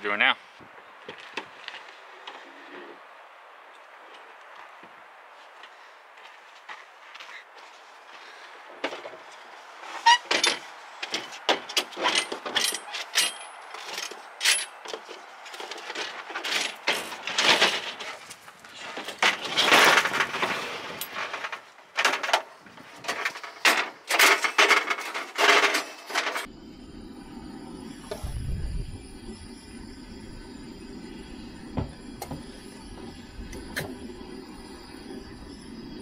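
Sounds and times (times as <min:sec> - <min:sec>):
camp cooking gear clinking: 0:10.0 - 0:26.5.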